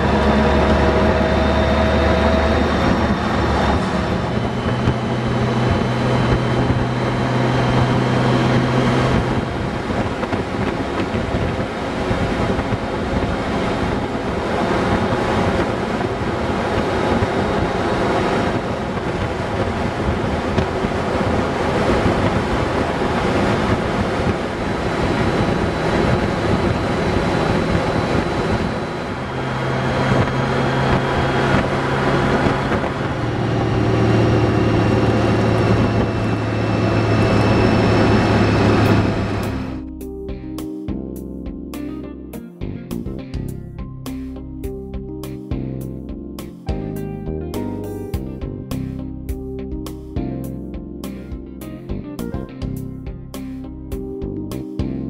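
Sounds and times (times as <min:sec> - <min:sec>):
wind rush on microphone: 0:00.0 - 0:39.9
motorcycle engine hum: 0:00.0 - 0:42.1.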